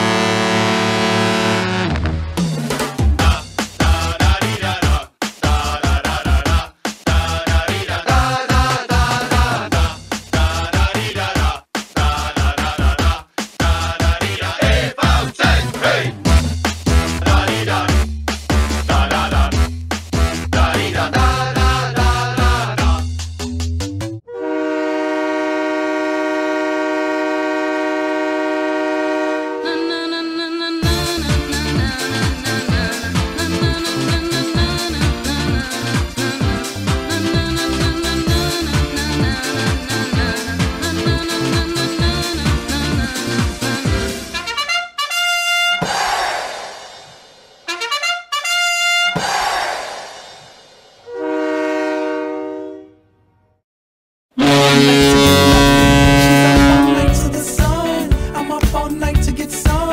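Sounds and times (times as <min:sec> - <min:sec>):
goal horn: 0:00.0 - 0:02.2, 0:24.3 - 0:30.0, 0:44.3 - 0:45.8, 0:47.7 - 0:49.2, 0:51.1 - 0:53.2, 0:54.4 - 0:57.4
held brass chord: 0:00.0 - 0:02.4, 0:24.3 - 0:30.0, 0:44.1 - 0:45.8, 0:47.7 - 0:49.2, 0:54.4 - 0:58.1
trumpet run: 0:00.0 - 0:02.4, 0:14.7 - 0:22.6, 0:44.3 - 0:46.4, 0:47.6 - 0:49.7, 0:54.4 - 0:57.5
cymbal crash: 0:45.9 - 0:47.7, 0:49.2 - 0:51.1.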